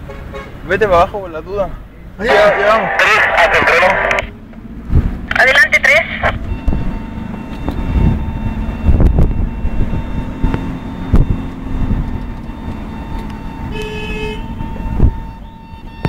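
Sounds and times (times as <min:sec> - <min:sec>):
engine and road rumble: 0:00.0 - 0:16.0
car horn blast: 0:13.7 - 0:14.6.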